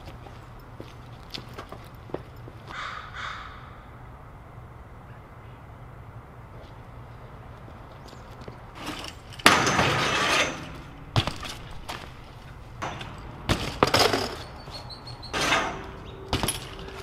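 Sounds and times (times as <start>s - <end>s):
bike clattering on concrete: 0.8s - 2.8s, 8.0s - 17.0s.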